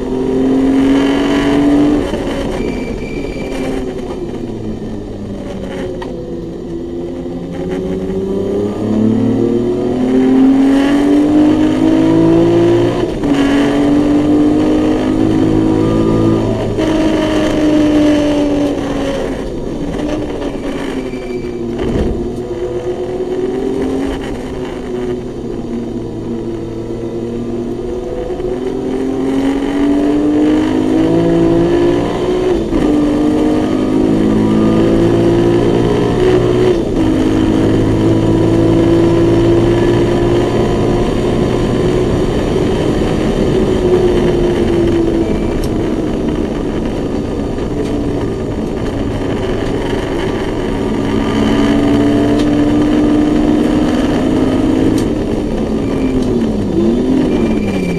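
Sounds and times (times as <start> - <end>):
race car engine accelerating: 0.0 - 57.9.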